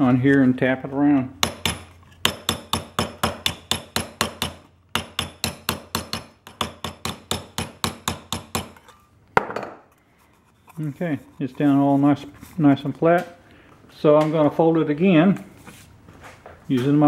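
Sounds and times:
hammer tapping metal can rim: 1.4s - 9.0s.

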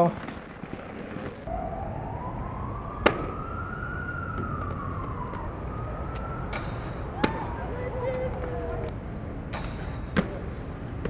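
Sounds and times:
siren wailing: 1.5s - 9.0s.

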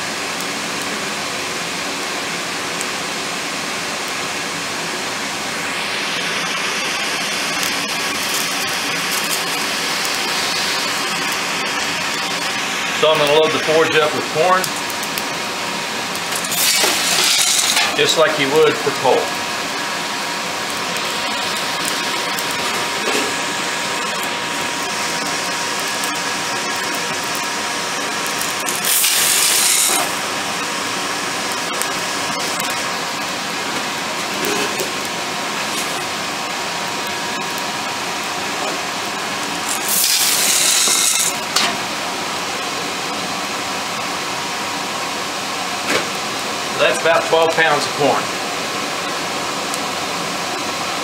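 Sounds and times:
forge air blower running: 0.0s - 51.0s
corn kernels pouring rattle: 16.4s - 17.8s, 28.5s - 30.2s, 39.6s - 41.4s.

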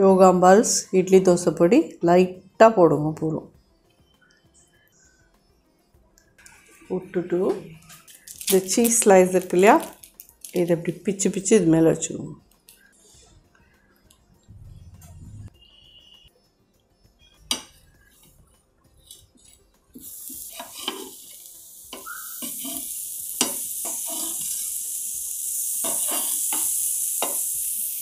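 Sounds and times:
dosas sizzling on a griddle: 8.0s - 10.6s, 17.5s - 28.0s.

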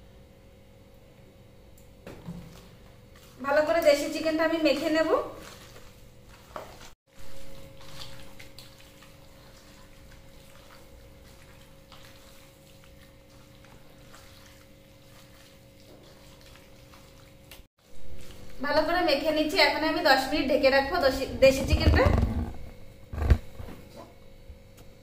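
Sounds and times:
wet squelching of kneaded meat: 2.5s - 18.6s.

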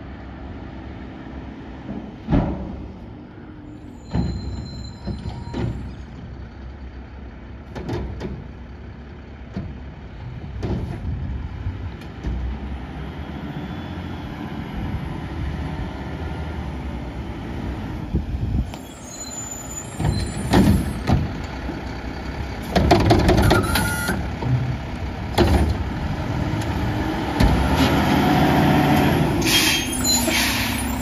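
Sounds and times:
garbage truck diesel engine: 0.0s - 31.0s
truck clanks and bangs: 1.4s - 13.1s, 19.7s - 31.0s.

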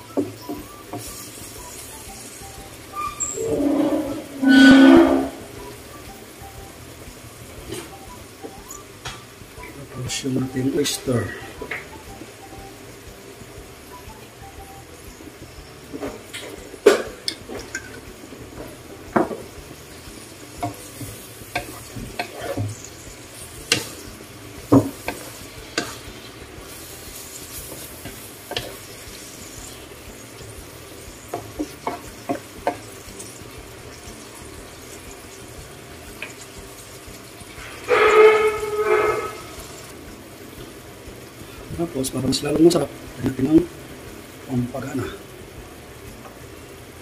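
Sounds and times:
food sizzling in a wok: 0.0s - 47.0s
wooden spatula stirring wok: 15.2s - 47.0s
utensils clicking against pan: 16.1s - 18.0s, 20.6s - 23.0s, 23.6s - 24.0s.

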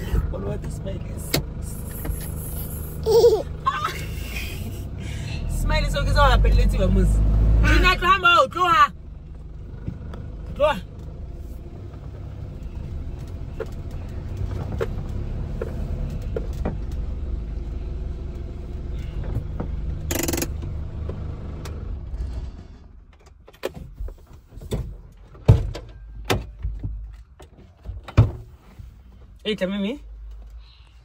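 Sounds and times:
car driving rumble from inside cabin: 0.0s - 31.0s.

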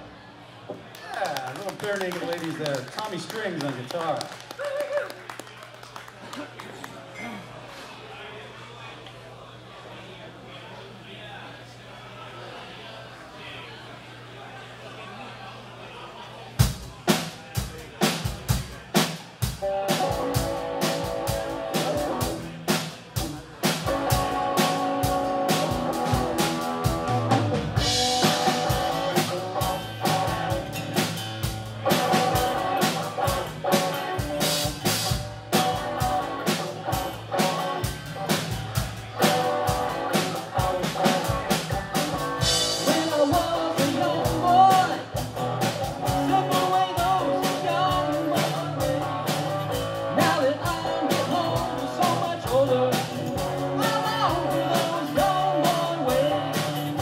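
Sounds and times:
drum kit beat: 16.6s - 57.0s
electric and acoustic guitars: 18.3s - 57.0s.

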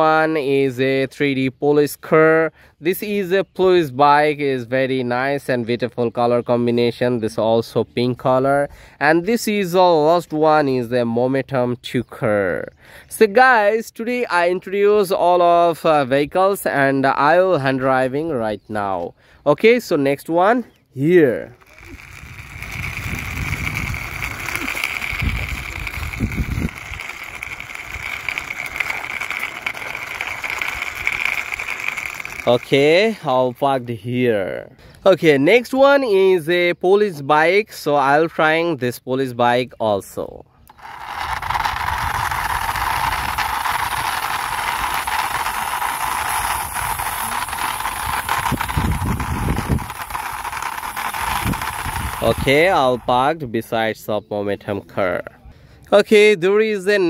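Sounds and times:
toy car wheels rattling on concrete: 2.9s - 7.1s, 9.1s - 11.1s, 13.0s - 19.0s, 19.6s - 36.7s, 40.0s - 53.8s.

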